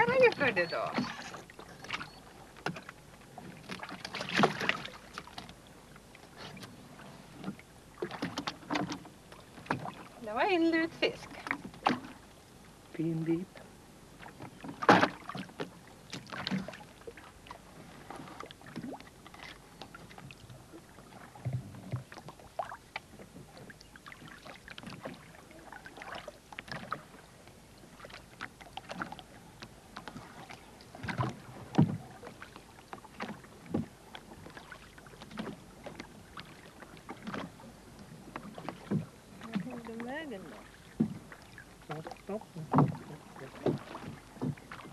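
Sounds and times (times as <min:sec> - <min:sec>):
oars knocking on wooden boat hull: 0:00.0 - 0:02.0, 0:28.8 - 0:44.9.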